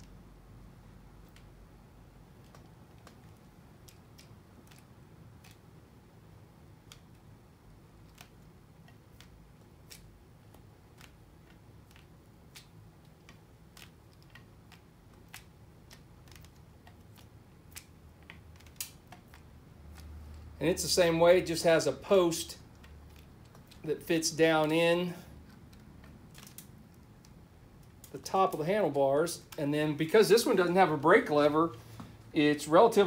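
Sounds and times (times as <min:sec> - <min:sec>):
low room hum: 0:00.0 - 0:33.0
light clicks of small parts: 0:02.4 - 0:05.7, 0:06.8 - 0:07.3, 0:08.0 - 0:20.6, 0:25.3 - 0:28.6.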